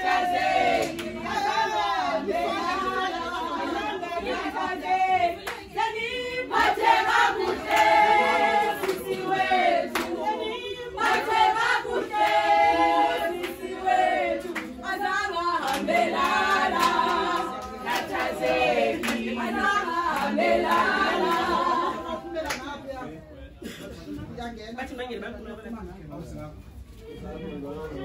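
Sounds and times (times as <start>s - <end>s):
group singing unaccompanied: 0.0s - 22.8s
hand claps: 8.8s - 9.2s, 9.8s - 10.2s, 14.4s - 14.8s, 15.6s - 21.5s, 22.4s - 22.7s.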